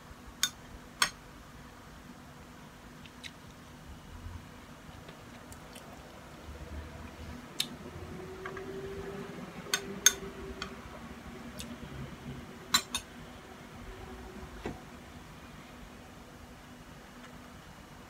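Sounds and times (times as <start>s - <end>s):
soft eating noises: 2.9s - 12.4s.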